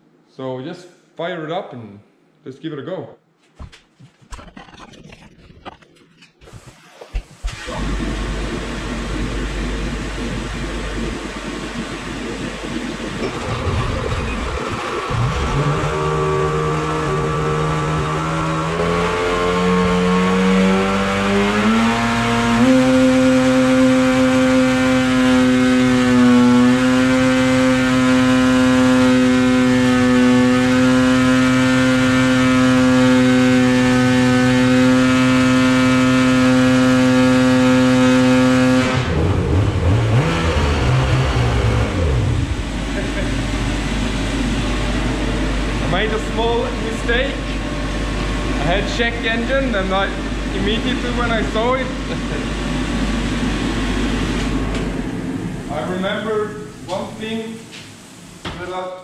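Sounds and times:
two-stroke snowmobile engine revving: 7.5s - 54.6s.

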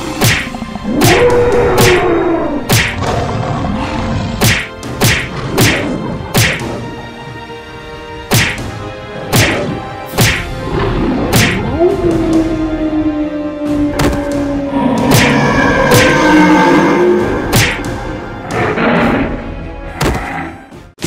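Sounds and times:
background music: 0.0s - 21.0s
cartoon whacks and thuds: 0.1s - 0.6s, 2.7s - 3.0s, 4.4s - 6.8s, 8.3s - 10.6s, 11.3s - 11.7s, 15.1s - 16.1s, 17.5s - 18.0s.

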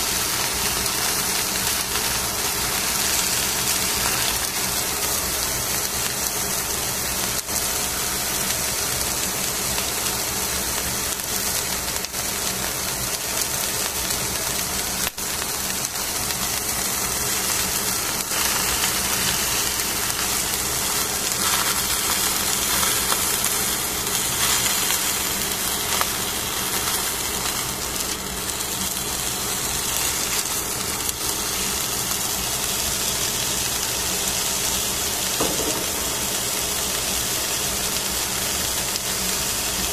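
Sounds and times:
fish sizzling in a pan: 0.0s - 39.9s.

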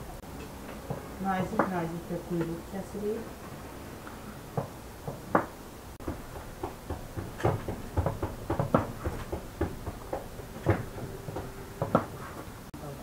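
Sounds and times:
knife knocking on wooden board: 4.6s - 12.1s.

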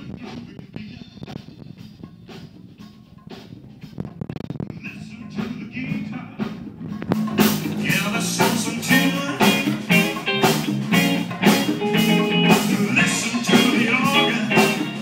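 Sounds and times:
drums steady beat: 0.0s - 15.0s
electric guitar: 4.0s - 15.0s
live blues-rock band: 4.8s - 15.0s.

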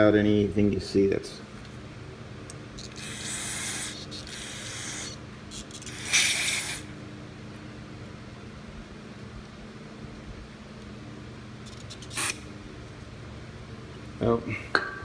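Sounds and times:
aerosol spraying: 2.8s - 6.9s, 11.7s - 12.5s.

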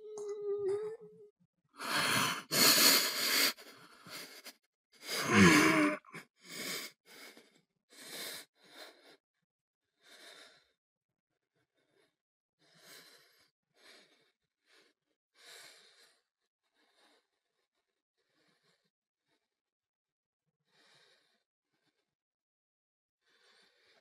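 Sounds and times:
man breathing heavily: 1.8s - 9.2s
man groaning: 5.2s - 6.1s.

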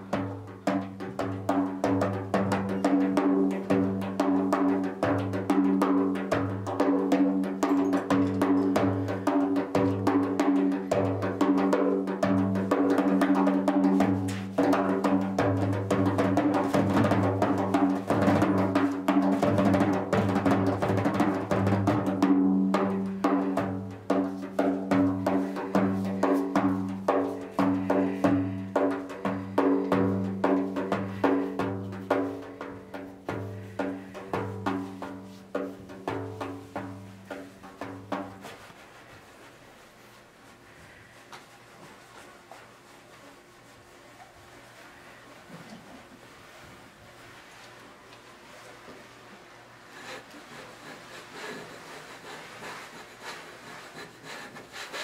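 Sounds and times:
frame drum played by hand: 0.0s - 39.0s.

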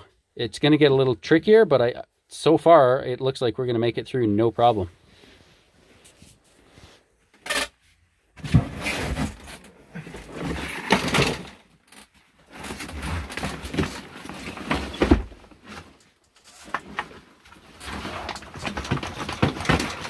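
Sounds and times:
plastic canister scraping and knocking: 8.4s - 11.6s, 17.7s - 20.0s.

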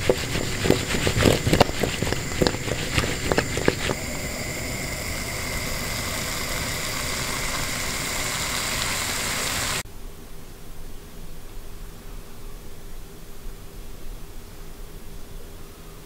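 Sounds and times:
vegetables sizzling in a frying pan: 3.9s - 9.8s.

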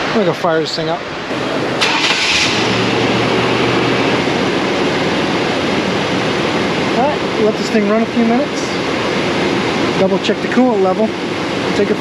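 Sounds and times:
engine fan noise: 0.0s - 12.0s
truck engine starting and running: 1.3s - 8.7s.

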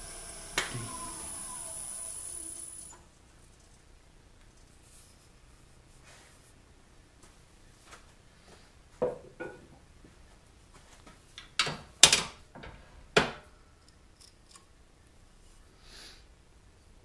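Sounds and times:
lathe tailstock clunks: 0.0s - 3.0s.

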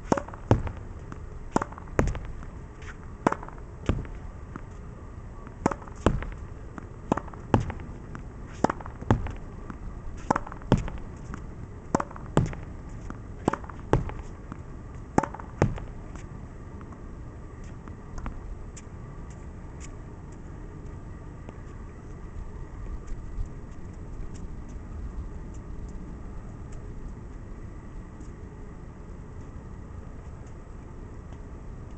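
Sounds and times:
racket hitting tennis ball: 0.0s - 17.0s.

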